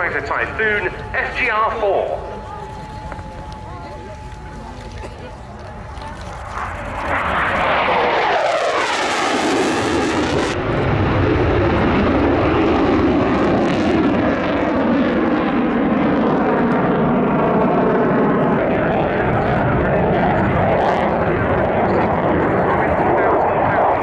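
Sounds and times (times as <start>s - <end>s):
jet fighter afterburner roar: 4.9s - 24.0s.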